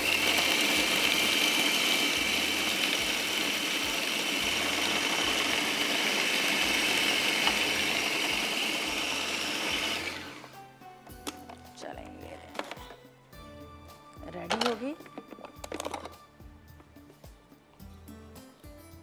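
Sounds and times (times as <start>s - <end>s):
electric food chopper running: 0.0s - 10.6s.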